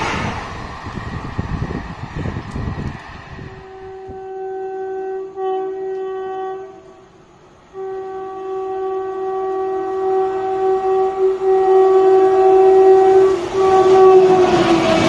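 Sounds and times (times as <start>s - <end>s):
train horn blasts: 3.4s - 15.0s.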